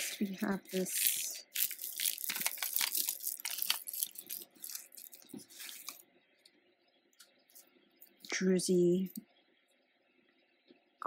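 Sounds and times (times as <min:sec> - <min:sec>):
beads clicking and rustling: 0:00.6 - 0:06.0.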